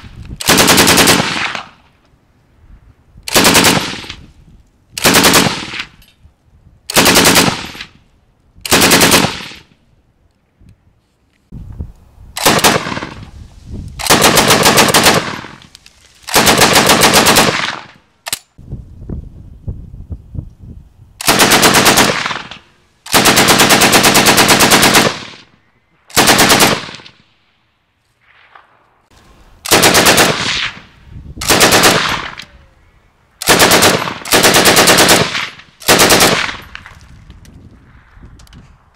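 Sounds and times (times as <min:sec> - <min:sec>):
machine gun bursts: 0:31.4 - 0:32.3, 0:33.4 - 0:36.6.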